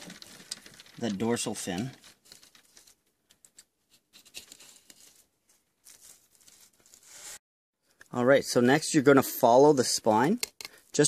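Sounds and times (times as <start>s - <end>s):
hands handling wet fish: 0.0s - 6.8s.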